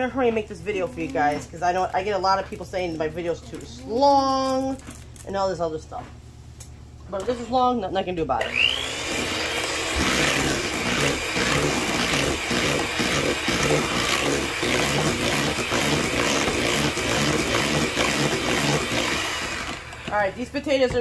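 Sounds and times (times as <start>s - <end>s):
electric mixer running: 8.4s - 20.7s.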